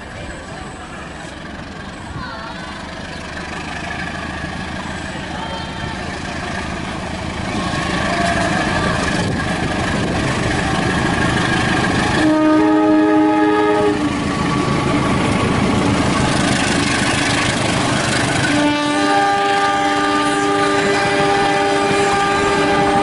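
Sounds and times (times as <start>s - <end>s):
wheels on rails: 0.0s - 12.3s, 14.0s - 18.7s
locomotive engine passing: 0.0s - 23.0s
multi-tone air horn: 12.2s - 14.0s, 18.5s - 23.0s.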